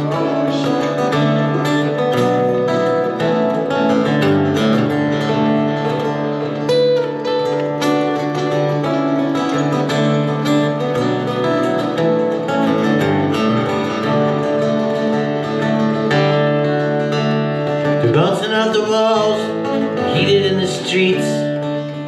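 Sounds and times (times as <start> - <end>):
man singing: 0.0 - 2.0, 18.0 - 22.0
acoustic guitar playing: 0.0 - 22.0.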